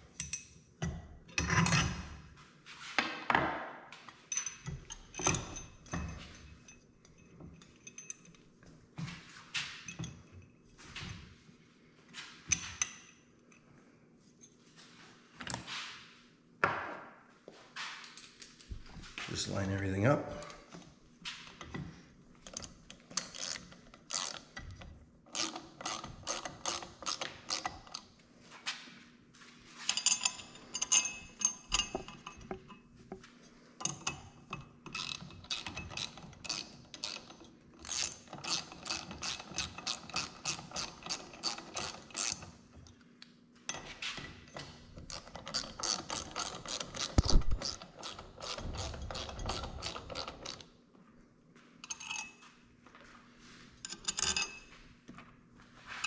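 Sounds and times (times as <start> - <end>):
hand ratchet wrench clicking: 22.5 - 24.6, 25.3 - 28.0, 34.9 - 42.5, 45.1 - 50.6.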